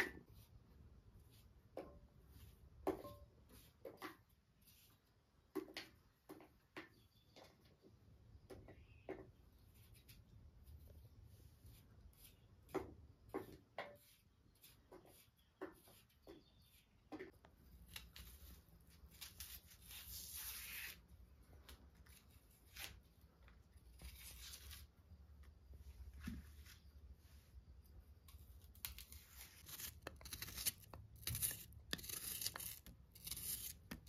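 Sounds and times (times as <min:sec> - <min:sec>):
knife scraping potato skin: 0:28.7 - 0:34.0.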